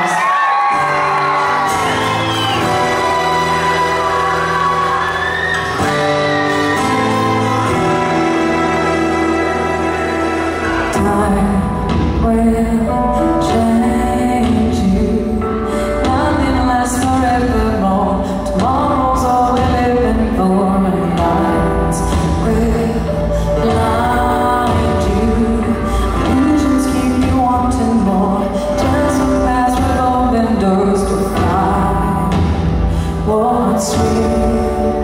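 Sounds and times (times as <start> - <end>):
live pop band: 0.0 - 35.0
woman singing: 10.7 - 35.0.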